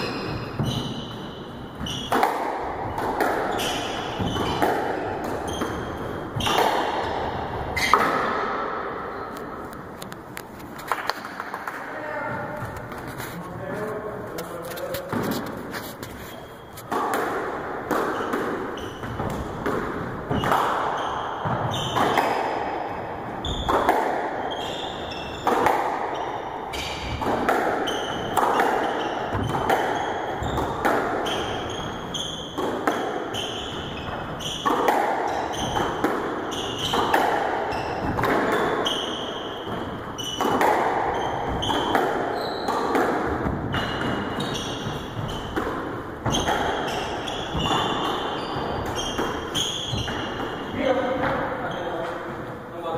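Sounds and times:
squash ball hits echoing: 0.0s - 10.1s, 10.8s - 13.0s, 16.8s - 52.5s
sneakers squeaking on wooden floor: 0.0s - 52.6s.

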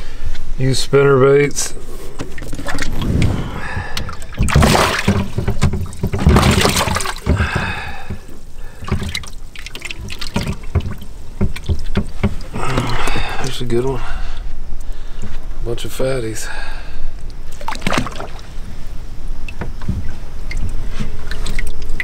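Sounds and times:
water sloshing and splashing: 1.8s - 13.7s, 17.4s - 22.0s.

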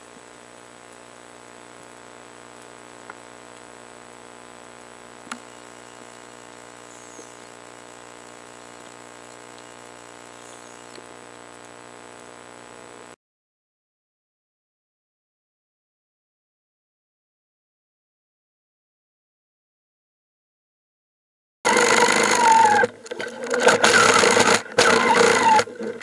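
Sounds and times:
steady underwater hum: 0.0s - 13.2s, 21.7s - 26.0s.

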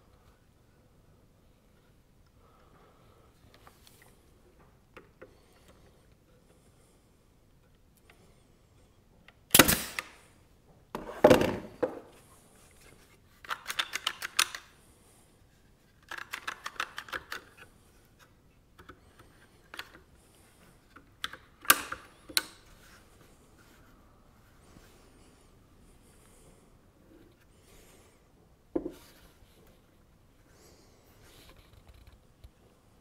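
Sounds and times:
nail gun firing: 9.5s - 10.2s.

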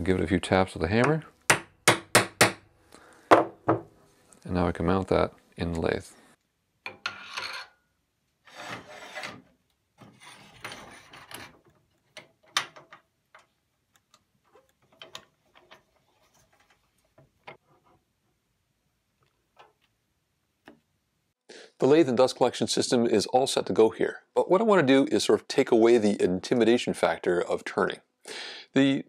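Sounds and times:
metal scraping and rubbing: 7.0s - 7.8s, 8.4s - 11.8s.

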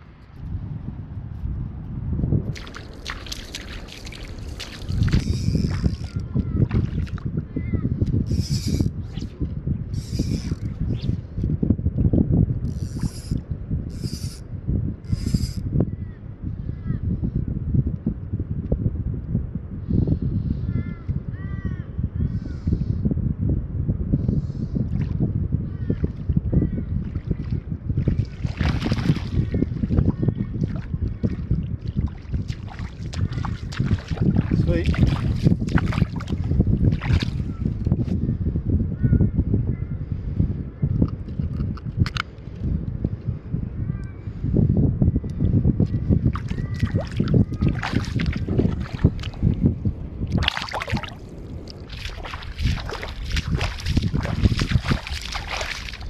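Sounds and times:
wind buffeting microphone: 0.0s - 56.0s
splashing in shallow water: 2.5s - 7.4s, 27.0s - 30.0s, 30.6s - 37.6s, 46.3s - 49.6s, 50.2s - 56.0s.

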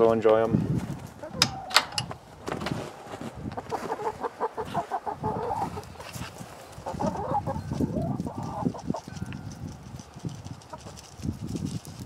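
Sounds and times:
hens clucking: 1.0s - 2.8s, 3.5s - 9.6s, 10.5s - 11.1s.

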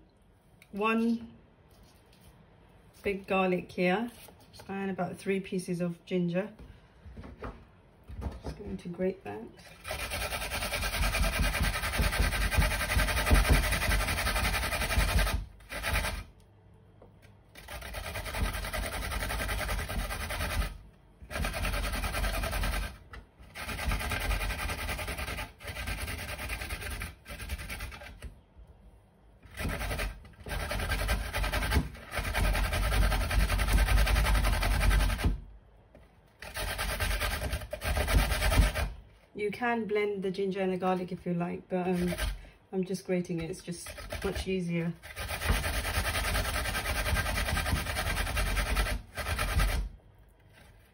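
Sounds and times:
ginger grated on metal grater: 9.6s - 16.3s, 17.6s - 28.2s, 29.5s - 35.4s, 36.4s - 39.0s, 41.8s - 42.4s, 43.4s - 49.9s.

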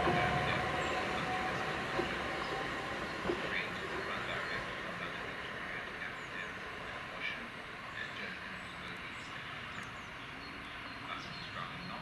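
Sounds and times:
electric train running: 0.0s - 11.1s
birds chirping: 0.0s - 12.0s.

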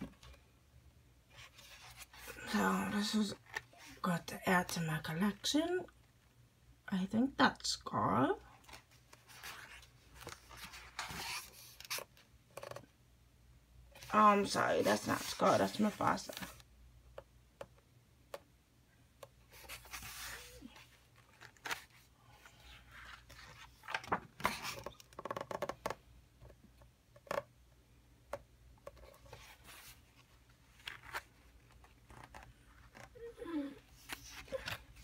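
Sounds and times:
pages rustling: 8.6s - 12.9s, 19.5s - 26.0s, 28.8s - 33.2s, 33.9s - 35.0s.

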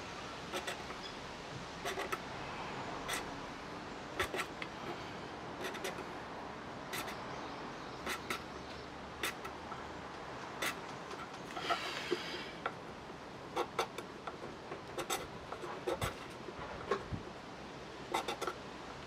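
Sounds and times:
knife scraping bamboo rod: 0.4s - 1.2s, 1.8s - 2.3s, 3.0s - 3.3s, 4.2s - 6.1s, 6.9s - 7.2s, 8.0s - 8.5s, 9.2s - 9.6s, 10.5s - 12.8s, 13.5s - 17.1s, 18.1s - 18.6s.

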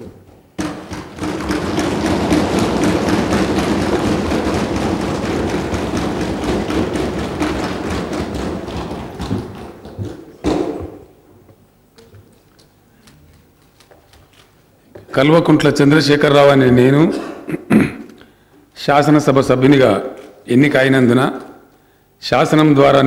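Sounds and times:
people thumping wooden desks: 0.0s - 11.2s
people clapping: 0.6s - 10.6s.

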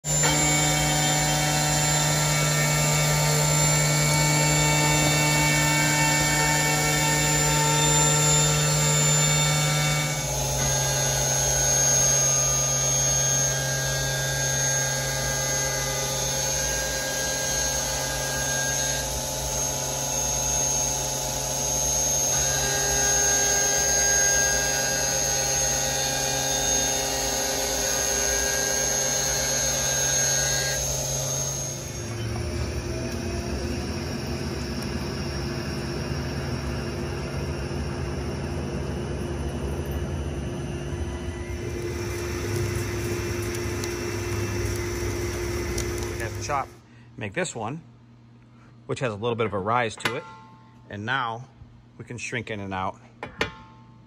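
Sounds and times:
milling machine whine: 0.0s - 46.9s
low hum: 30.8s - 47.1s.

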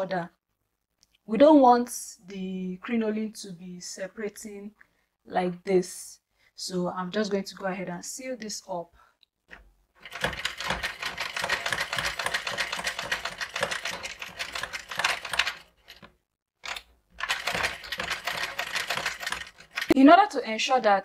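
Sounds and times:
sewing machine stitching: 9.5s - 20.0s.

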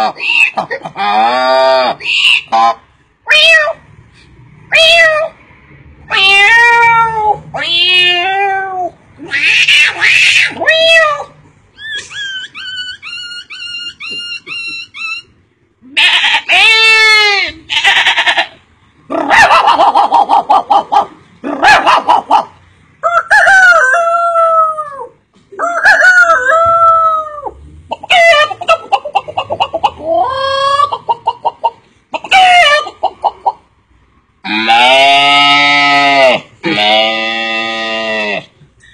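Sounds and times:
man imitating chickens: 19.1s - 33.6s.

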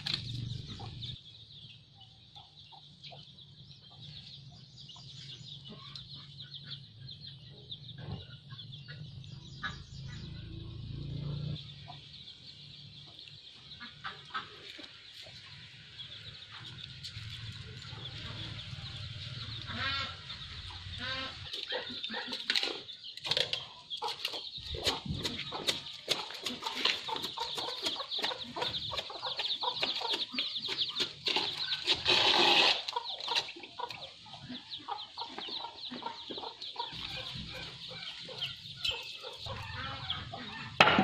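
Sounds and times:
chickens clucking: 0.0s - 41.0s.

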